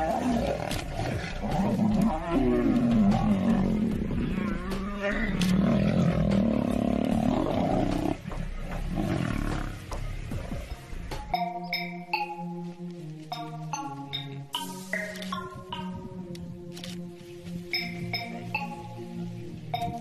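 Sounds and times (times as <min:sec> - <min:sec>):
lions growling and roaring: 0:00.0 - 0:10.8.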